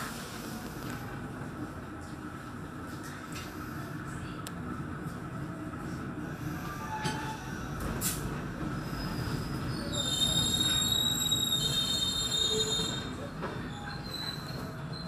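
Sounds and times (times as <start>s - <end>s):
train rumbling: 0.0s - 15.0s
train wheels squealing: 6.7s - 7.7s, 8.8s - 15.0s.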